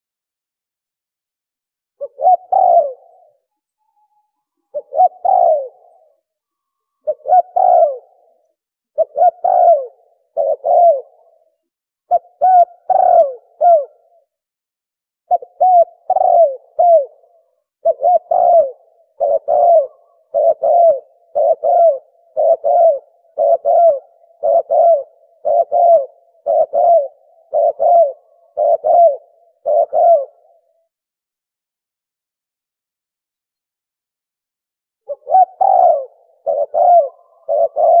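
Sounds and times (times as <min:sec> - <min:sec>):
doves cooing: 0:02.0 - 0:03.4, 0:04.7 - 0:06.2, 0:07.0 - 0:08.4, 0:09.0 - 0:11.5, 0:12.1 - 0:14.1, 0:15.3 - 0:30.8, 0:35.1 - 0:38.0.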